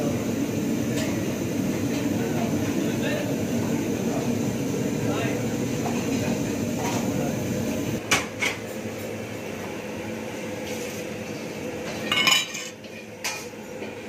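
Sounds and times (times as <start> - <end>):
steady background hum: 0.0 - 14.0
dishes clinking: 11.8 - 13.6
dishes clattering: 11.9 - 13.5.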